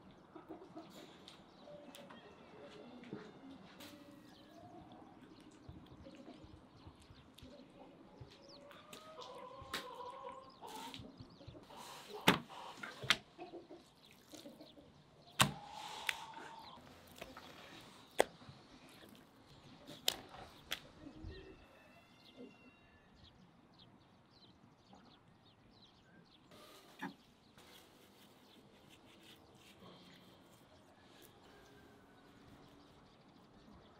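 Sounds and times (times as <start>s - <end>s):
small birds chirping: 0.0s - 33.9s
hens clucking: 7.7s - 18.1s.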